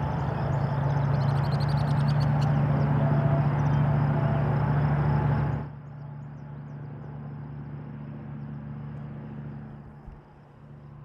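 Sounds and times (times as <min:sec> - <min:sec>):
small birds chirping: 0:00.0 - 0:02.9
low mechanical hum: 0:00.0 - 0:11.0.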